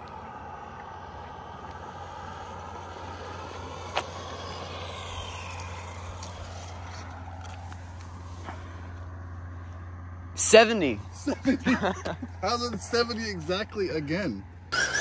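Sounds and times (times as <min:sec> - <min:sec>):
electric toy car motor whine: 0:00.2 - 0:08.4, 0:14.7 - 0:15.0.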